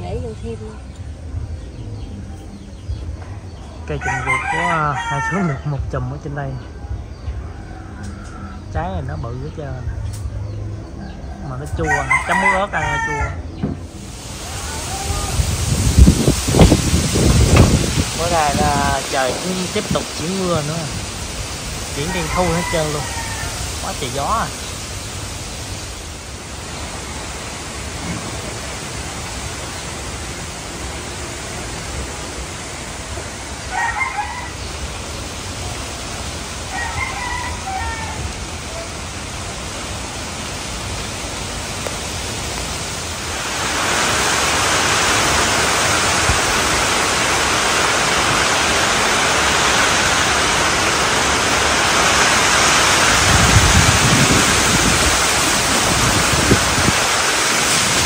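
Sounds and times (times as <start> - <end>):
rain sweeping in: 0.0 - 58.0
strong wind through palms: 0.0 - 58.0
rooster crowing: 3.9 - 5.8, 11.0 - 13.6, 22.0 - 23.8, 33.3 - 34.8, 36.6 - 38.9
wind rumbling on microphone: 13.4 - 58.0.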